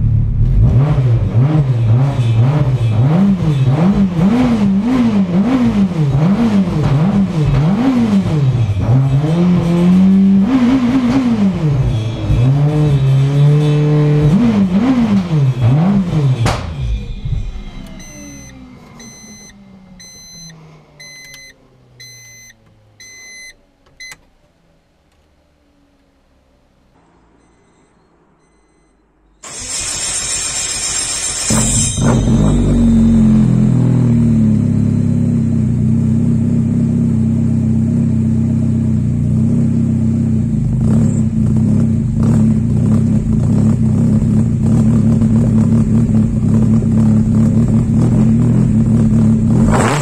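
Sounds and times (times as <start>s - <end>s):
car engine revving: 0.0s - 50.0s
dashboard warning chime beeping: 14.3s - 24.2s, 27.0s - 29.9s.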